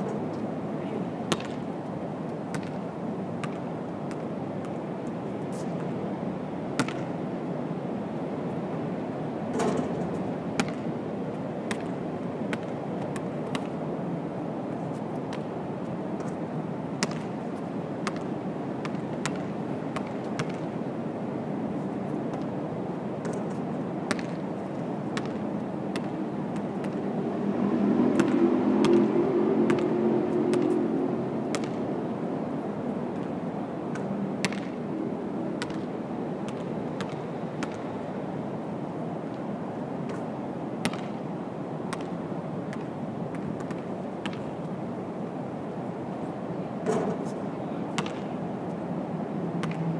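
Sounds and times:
low city rumble: 0:00.0 - 0:49.9
ball striking rim and backboard: 0:01.3 - 0:01.6, 0:03.4 - 0:04.2, 0:06.8 - 0:07.1, 0:09.5 - 0:10.9, 0:20.0 - 0:20.6, 0:31.5 - 0:31.8, 0:33.9 - 0:34.7, 0:48.0 - 0:48.3, 0:49.6 - 0:49.8
basketball bouncing on court: 0:01.3 - 0:01.6, 0:02.5 - 0:02.8, 0:03.4 - 0:04.8, 0:06.8 - 0:07.1, 0:10.6 - 0:10.9, 0:11.7 - 0:13.8, 0:17.0 - 0:17.3, 0:18.0 - 0:20.7, 0:24.1 - 0:24.4, 0:25.2 - 0:27.0, 0:31.5 - 0:31.8, 0:33.9 - 0:34.8, 0:35.6 - 0:35.8, 0:36.5 - 0:37.8, 0:40.8 - 0:41.2, 0:41.9 - 0:44.4, 0:47.9 - 0:48.3, 0:49.6 - 0:49.8.

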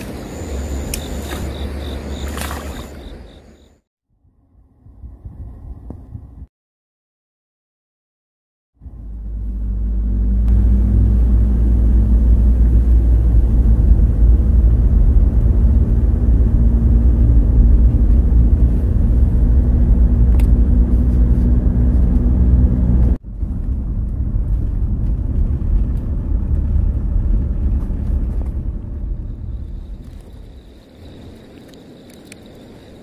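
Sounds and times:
car road and engine rumble: 0:00.0 - 0:03.8, 0:08.8 - 0:33.0
rough rumble: 0:08.8 - 0:33.0.

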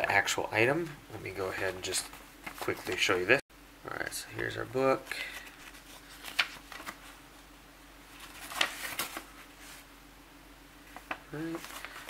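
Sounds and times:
paper rustling: 0:01.5 - 0:03.2, 0:05.2 - 0:07.2, 0:08.1 - 0:09.9, 0:10.8 - 0:12.0
paper crackles: 0:01.8 - 0:03.2, 0:05.2 - 0:07.2, 0:08.1 - 0:09.8, 0:10.9 - 0:12.0.

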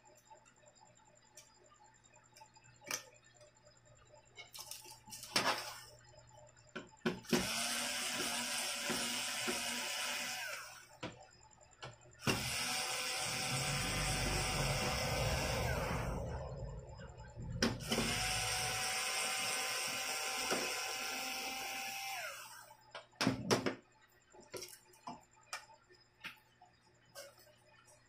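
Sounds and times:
cordless screwdriver running: 0:07.4 - 0:10.8, 0:12.2 - 0:16.1, 0:17.8 - 0:22.6.

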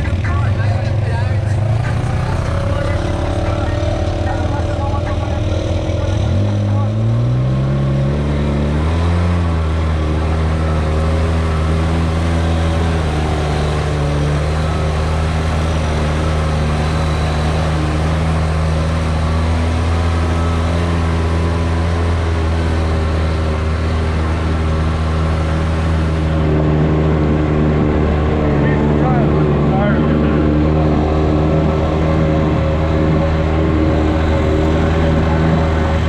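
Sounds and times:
off-road vehicle engine running: 0:00.0 - 0:36.0.

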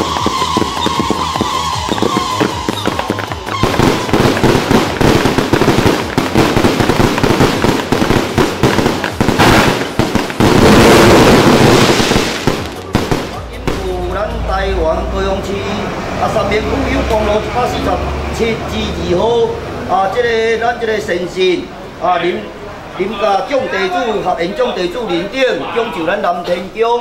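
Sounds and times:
firecrackers crackling and popping: 0:00.0 - 0:14.1.

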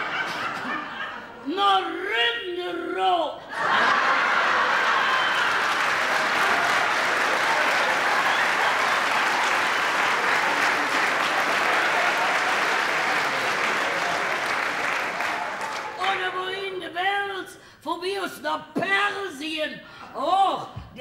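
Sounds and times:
audience applauding: 0:03.8 - 0:16.2.

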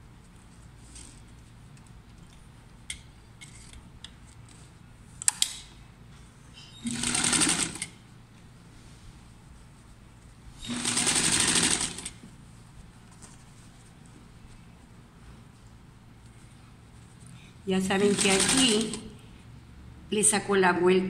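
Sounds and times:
sewing machine stitching: 0:06.8 - 0:07.9, 0:10.6 - 0:12.2, 0:18.0 - 0:19.1.

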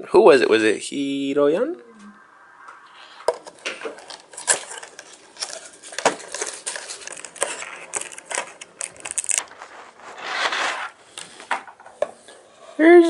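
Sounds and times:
packaging crinkling: 0:04.3 - 0:10.7.

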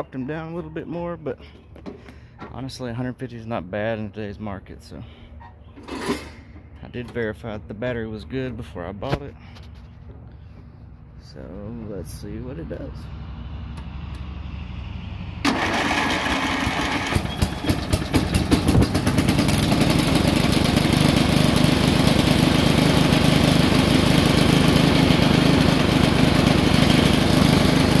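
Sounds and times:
engine running: 0:08.4 - 0:28.0
electric starter whirring: 0:15.4 - 0:28.0.

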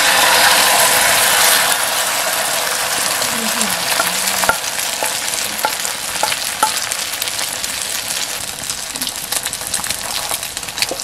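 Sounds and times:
egg sizzling in hot oil: 0:00.0 - 0:11.0
oil popping: 0:02.8 - 0:11.0.

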